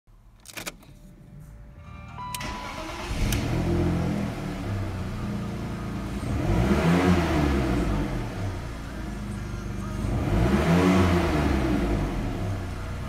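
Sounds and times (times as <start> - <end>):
car engine idling and revving: 0.7 - 13.0
engine cranking on starter: 2.3 - 5.2.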